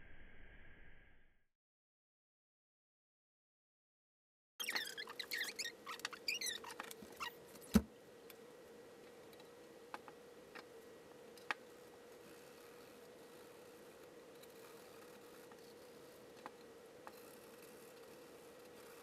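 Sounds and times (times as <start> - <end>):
low hum: 0.0 - 1.4.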